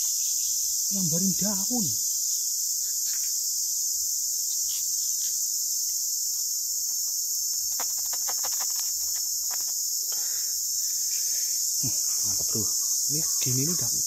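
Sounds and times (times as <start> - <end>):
insects chorus: 0.0 - 14.0
small clicks: 7.6 - 9.8.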